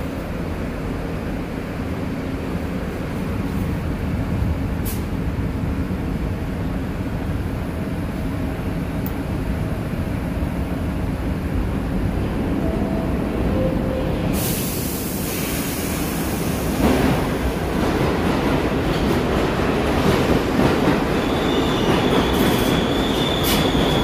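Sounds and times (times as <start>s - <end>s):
subway train rumble and hum: 0.0s - 24.0s.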